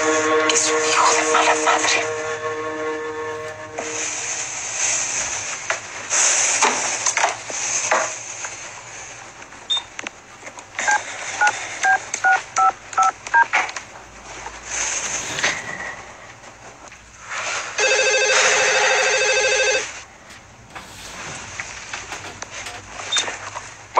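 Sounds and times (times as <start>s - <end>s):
rustling: 4.7s - 18.4s, 19.1s - 23.9s
touch-tone keypad beeps: 10.9s - 13.5s.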